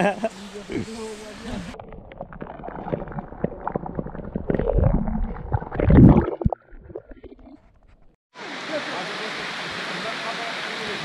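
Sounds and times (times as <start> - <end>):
underwater gurgling and bubbling: 1.7 - 8.1.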